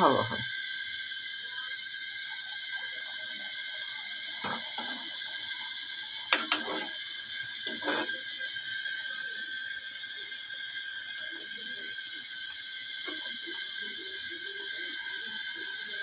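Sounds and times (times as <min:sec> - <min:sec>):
dough sizzling in hot oil: 0:00.0 - 0:16.0
metal spoon scraping pan: 0:06.3 - 0:07.0, 0:07.6 - 0:08.2.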